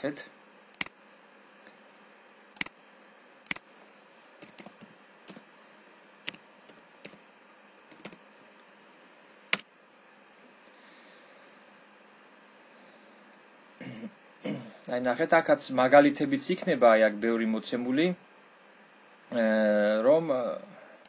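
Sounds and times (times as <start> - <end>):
keyboard keys clicking: 4.4 - 5.4, 7.9 - 8.2.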